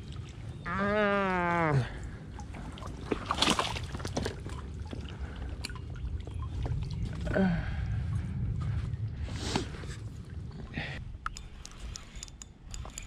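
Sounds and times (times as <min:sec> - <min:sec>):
water splashing around boots: 0:00.0 - 0:10.3.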